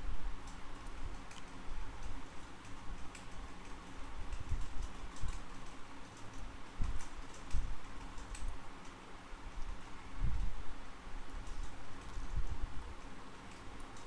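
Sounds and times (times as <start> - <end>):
faint steady hum: 0.0 - 14.0
keyboard and mouse clicking: 0.5 - 9.0, 11.4 - 14.0.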